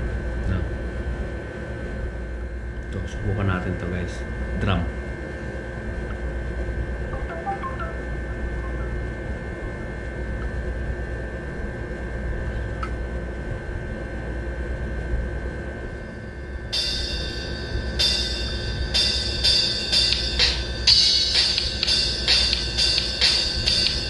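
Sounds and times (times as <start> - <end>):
steady background hum: 0.0 - 24.0
high-pitched whine: 6.1 - 10.9.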